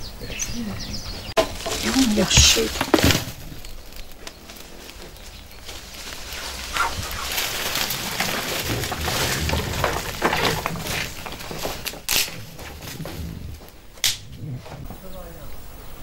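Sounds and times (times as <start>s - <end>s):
twigs crackling in a fire: 1.1s - 15.8s
sharp snaps of burning twigs: 1.4s - 9.3s, 10.9s - 14.8s.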